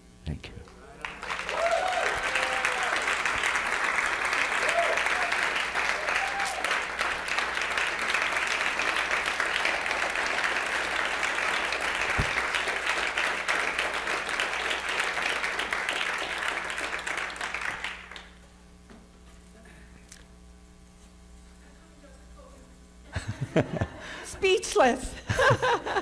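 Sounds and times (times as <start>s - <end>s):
audience applauding: 0.9s - 18.4s.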